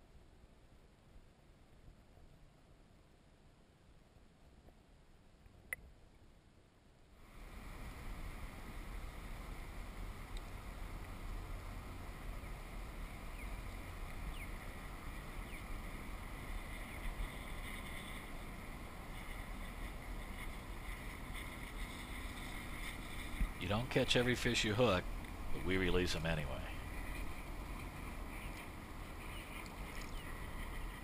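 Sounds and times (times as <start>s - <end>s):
water noise: 7.2s - 31.0s
wind on microphone: 7.5s - 31.0s.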